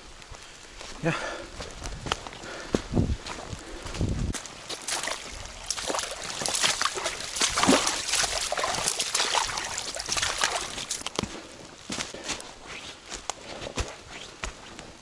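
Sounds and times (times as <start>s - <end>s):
boots splashing through stream: 4.4s - 14.6s
water trickling: 4.6s - 11.2s.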